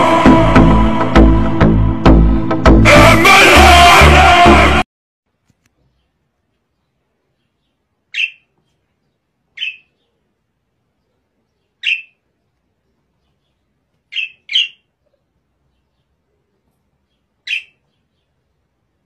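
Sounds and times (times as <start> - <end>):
budgerigar chirps: 8.1 - 8.5, 9.6 - 10.0, 11.8 - 12.2, 14.1 - 14.9, 17.4 - 18.0.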